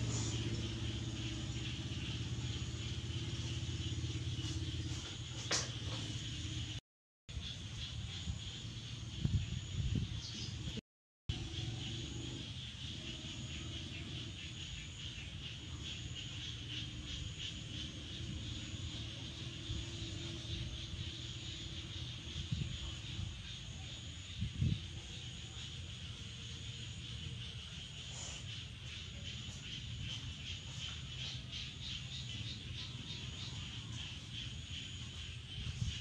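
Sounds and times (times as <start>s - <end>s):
insects chirping: 0.0s - 36.0s.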